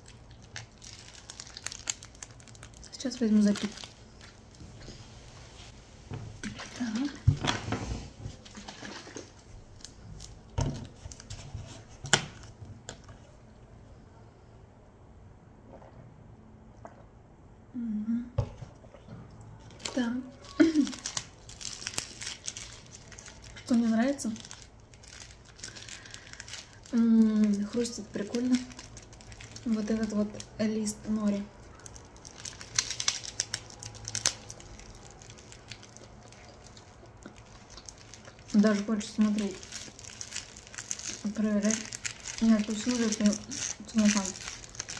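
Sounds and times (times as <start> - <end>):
crunching nori being bitten: 0.0 - 2.9, 19.8 - 23.7, 31.7 - 44.9
soft chewing: 34.2 - 38.7.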